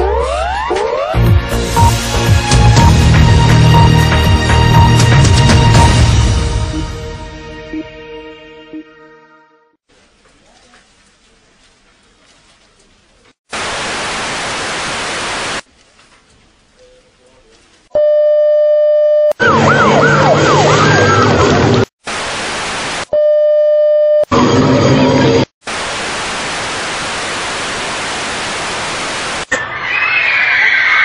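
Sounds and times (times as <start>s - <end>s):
rising and falling siren: 0.0s - 1.4s, 19.3s - 21.9s, 29.5s - 31.0s
tv static hiss: 13.5s - 15.7s, 22.0s - 23.1s, 25.6s - 29.6s.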